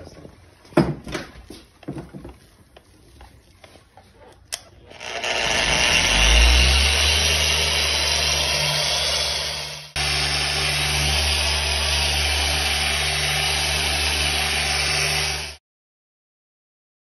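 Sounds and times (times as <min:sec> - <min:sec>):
polisher spinning: 0:04.7 - 0:15.6.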